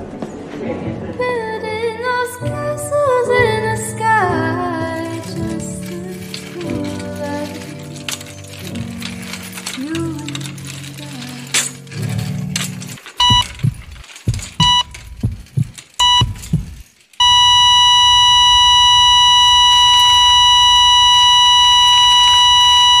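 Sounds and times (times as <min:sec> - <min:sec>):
low thuds: 0:13.2 - 0:16.9
heart monitor beeping: 0:13.2 - 0:23.0
flatline tone: 0:16.0 - 0:23.0.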